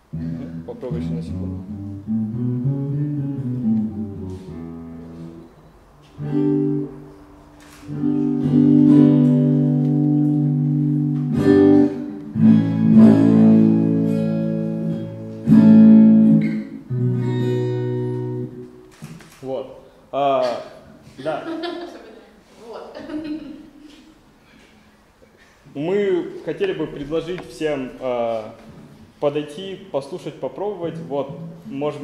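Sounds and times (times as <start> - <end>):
acoustic guitar strumming chords: 0.0 - 18.9, 30.8 - 32.0.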